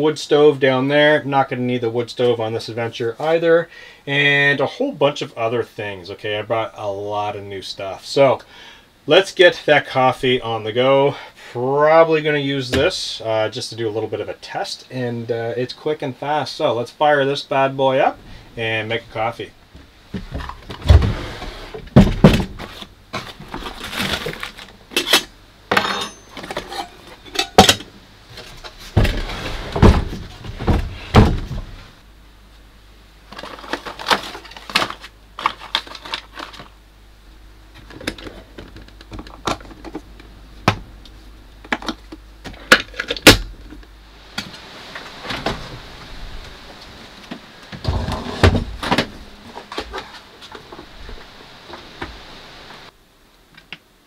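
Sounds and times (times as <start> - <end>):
drawers and cupboard doors banging: 20.2 - 24.4, 28.5 - 31.8, 47.8 - 50.1
objects knocking and set down: 21.9 - 31.7.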